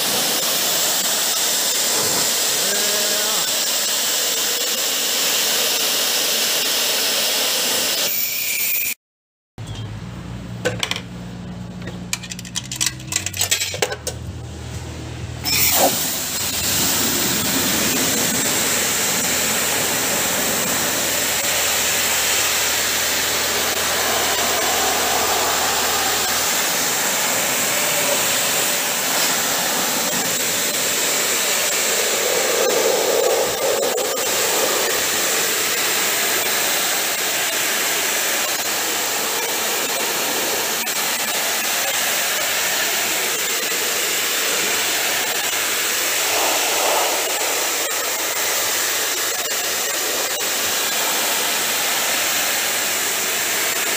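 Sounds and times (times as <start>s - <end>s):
pressure washer spraying water: 0.0s - 8.1s, 15.4s - 53.9s
low hum: 9.6s - 15.5s, 16.1s - 35.7s, 45.9s - 49.2s.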